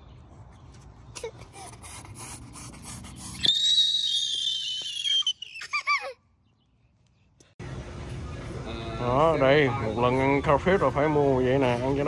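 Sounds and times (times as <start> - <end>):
toddler squealing: 3.3 - 6.2.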